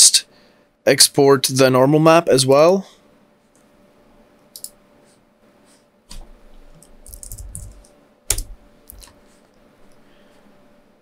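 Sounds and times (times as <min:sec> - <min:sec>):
keyboard keystrokes: 0:06.8 - 0:09.1.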